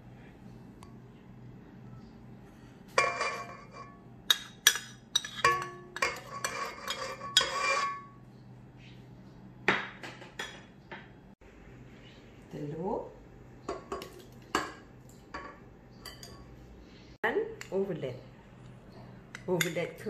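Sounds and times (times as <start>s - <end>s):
spoon clinking on metal bowl: 3.0s - 8.1s, 15.4s - 16.5s.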